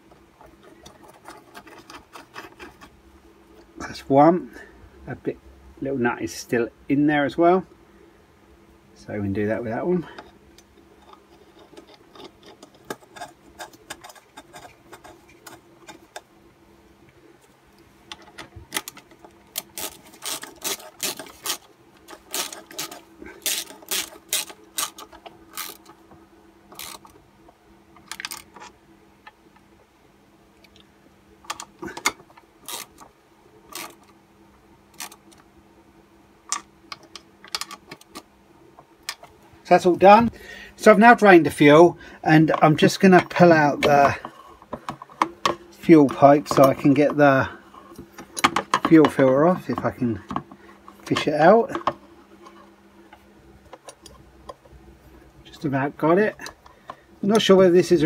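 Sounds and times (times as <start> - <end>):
ratchet clicking: 19.6 - 25.9.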